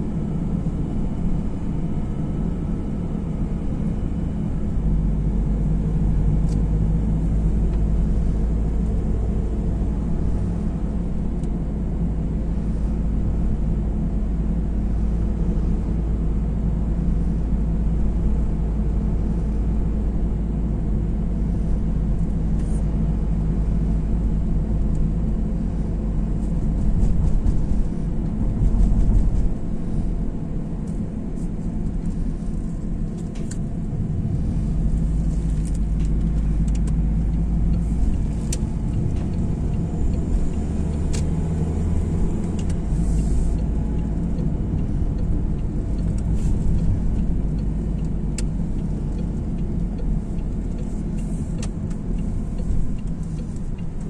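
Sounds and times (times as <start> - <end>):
car interior road rumble: 0.0 - 54.0.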